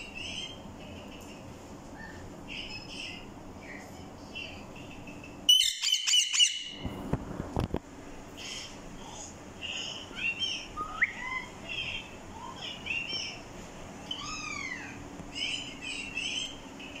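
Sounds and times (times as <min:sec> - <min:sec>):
parakeets chirping and whistling: 0:00.0 - 0:00.6, 0:02.0 - 0:06.8, 0:09.7 - 0:13.4, 0:14.1 - 0:17.0.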